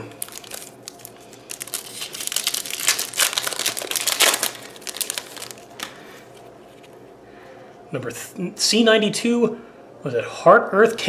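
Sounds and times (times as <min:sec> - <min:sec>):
foil wrapper crinkling: 0:00.0 - 0:06.4.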